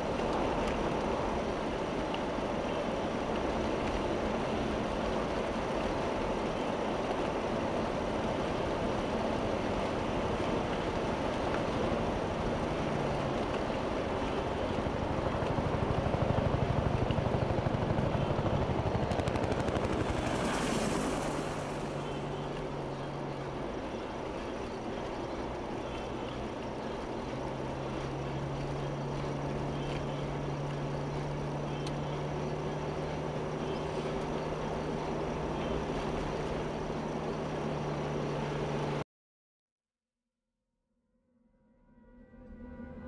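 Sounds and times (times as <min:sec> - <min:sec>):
car engine and tyre rumble: 0:00.0 - 0:39.0
fast rhythmic pulsing: 0:14.7 - 0:22.6.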